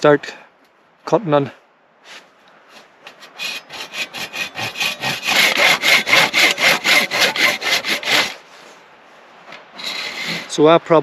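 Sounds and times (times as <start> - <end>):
hand saw cutting log: 3.0 - 8.4, 9.8 - 10.6.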